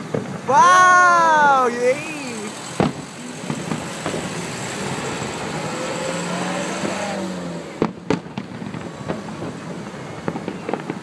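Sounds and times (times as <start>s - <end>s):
small fireworks pops: 0.0s - 0.6s, 1.4s - 4.4s, 7.7s - 11.0s
fireworks bangs: 0.0s - 11.0s
fireworks crackling hiss: 0.0s - 11.0s.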